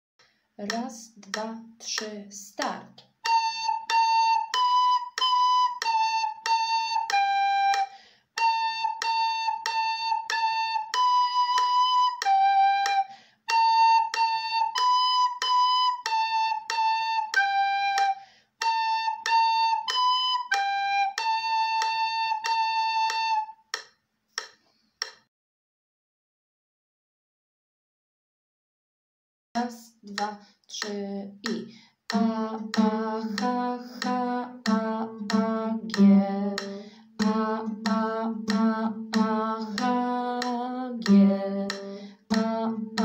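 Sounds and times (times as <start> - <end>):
recorder playing simple tune: 3.2 - 23.6
metronome click: 30.1 - 43.0.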